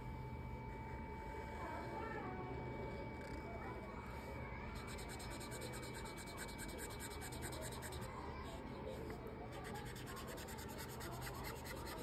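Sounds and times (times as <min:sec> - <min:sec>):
felt marker scribbling on paper: 0:04.8 - 0:08.1, 0:09.5 - 0:12.0.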